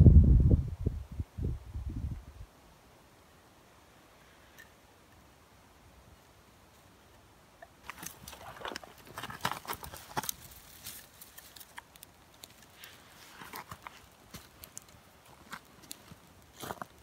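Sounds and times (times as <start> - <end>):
dry twigs crackling and snapping: 7.7 - 17.0.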